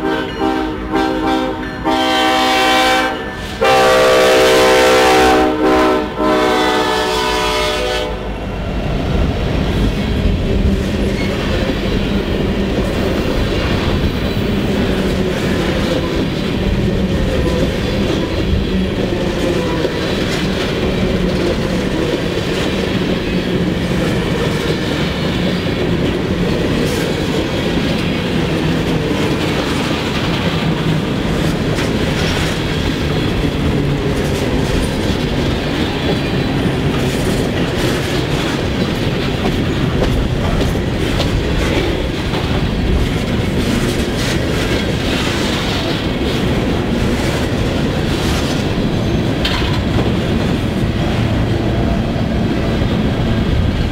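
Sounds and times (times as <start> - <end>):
steel wheels rumbling on rail: 0.0 - 53.9
wheels clicking over rail joints: 10.2 - 51.6.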